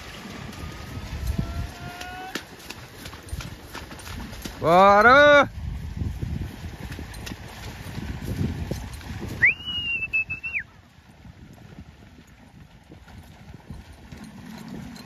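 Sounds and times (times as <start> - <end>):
horse hooves thudding: 0.0 - 15.0
person whistling loudly: 9.4 - 10.6.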